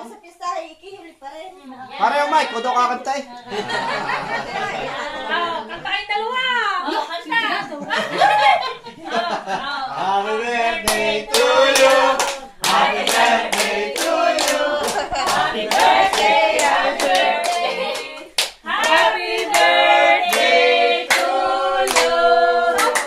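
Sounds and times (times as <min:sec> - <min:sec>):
group singing birthday song: 0:01.1 - 0:06.2, 0:06.8 - 0:23.0
people clapping along: 0:10.4 - 0:23.0.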